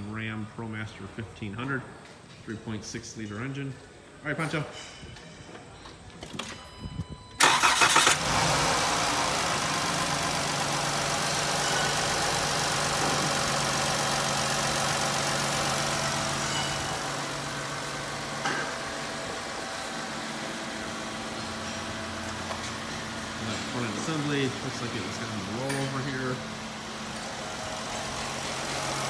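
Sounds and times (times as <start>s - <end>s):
starter cranking engine: 7.4s - 11.4s
engine idling: 7.4s - 29.0s.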